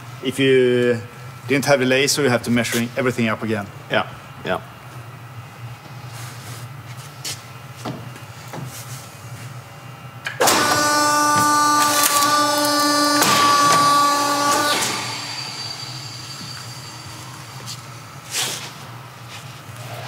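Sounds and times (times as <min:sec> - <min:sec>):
press motor whining: 0:10.3 - 0:18.2.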